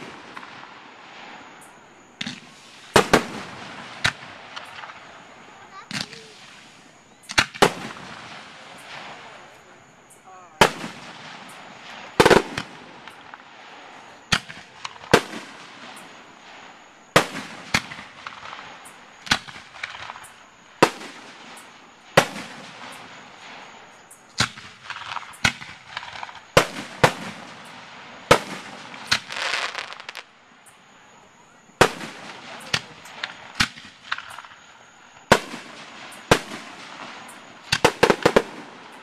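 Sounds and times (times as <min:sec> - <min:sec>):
fireworks crackling: 0:00.0 - 0:39.0
fireworks shells bursting: 0:10.1 - 0:13.6, 0:14.3 - 0:30.3, 0:31.8 - 0:39.0.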